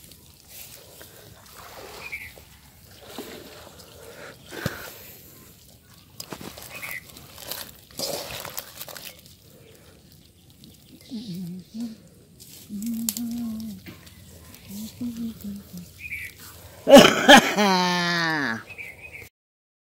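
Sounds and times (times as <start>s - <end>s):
fish splashing in water: 0.0s - 10.2s.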